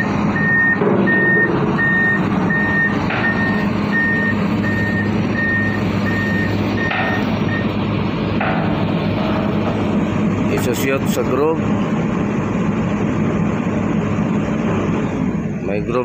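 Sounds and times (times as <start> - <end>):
motion alarm beeping: 0.0 - 7.7
diesel engine humming: 0.0 - 16.0.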